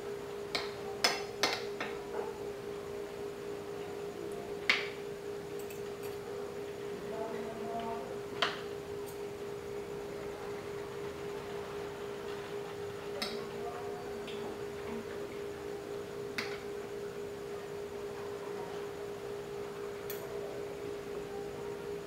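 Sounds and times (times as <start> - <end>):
steady hum: 0.0 - 22.0.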